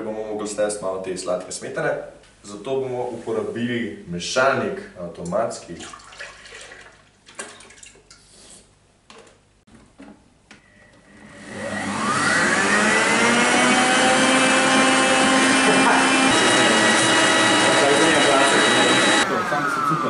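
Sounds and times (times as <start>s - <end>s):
stand mixer motor whine: 10.8s - 20.0s.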